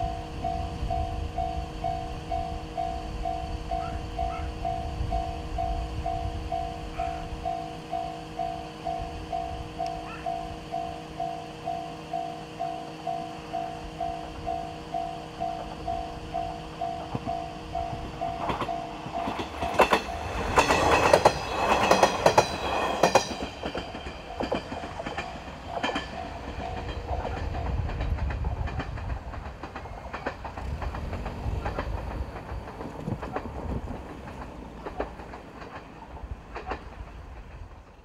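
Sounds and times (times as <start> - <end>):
crossing alarm bell: 0.0 - 28.0
train running rumble: 0.0 - 38.0
train wheels clattering: 13.1 - 38.0.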